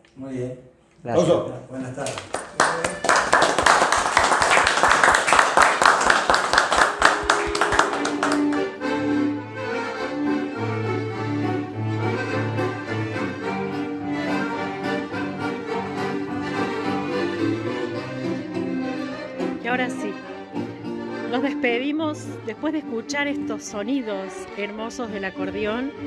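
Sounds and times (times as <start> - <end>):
group clapping: 1.9 - 8.9
accordions playing a tune: 6.1 - 26.0.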